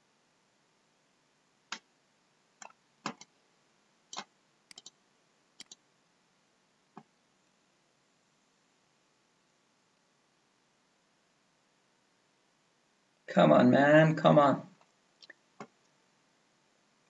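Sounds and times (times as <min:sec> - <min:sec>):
computer mouse clicking: 0:02.6 - 0:03.3, 0:04.1 - 0:05.0, 0:05.6 - 0:05.8.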